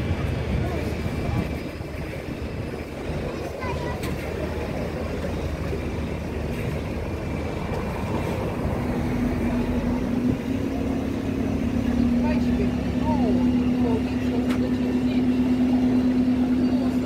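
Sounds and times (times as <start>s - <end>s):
traffic and engine rumble: 0.0s - 17.0s.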